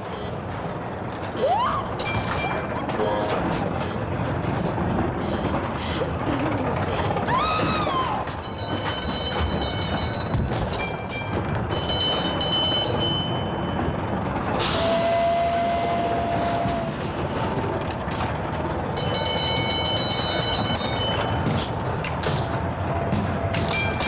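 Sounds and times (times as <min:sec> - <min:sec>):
ride car rumbling along track: 0:00.0 - 0:24.0
high ringing sound: 0:08.4 - 0:14.2, 0:19.0 - 0:21.6, 0:23.4 - 0:24.0.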